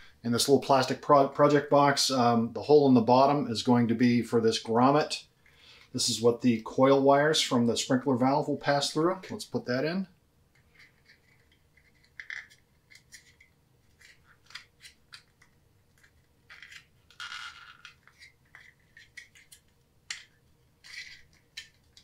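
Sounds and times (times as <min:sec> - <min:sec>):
plastic clicks and scrapes: 0:10.5 - 0:22.0.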